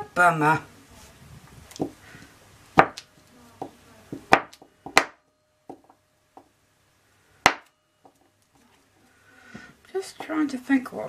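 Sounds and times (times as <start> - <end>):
knife chopping soap on wooden table: 2.8 - 3.0.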